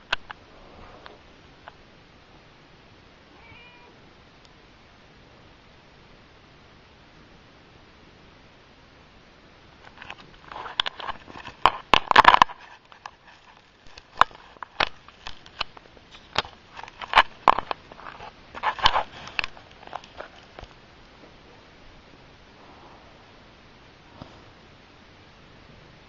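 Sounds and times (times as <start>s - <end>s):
close-up scuffling: 9.8s - 21.5s.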